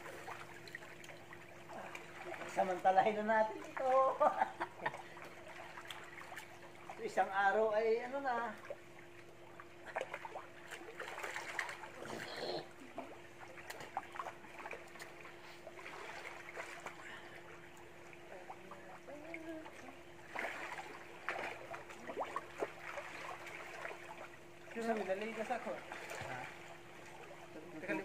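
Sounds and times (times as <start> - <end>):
faint steady hum: 0.0 - 28.0
pool water lapping and trickling: 0.0 - 28.0
small water splashes: 0.0 - 28.0.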